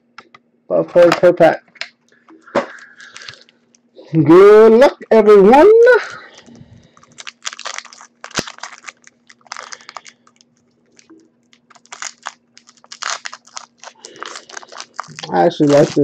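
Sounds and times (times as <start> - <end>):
foil wrapper crinkling: 2.7 - 3.5, 6.3 - 16.0.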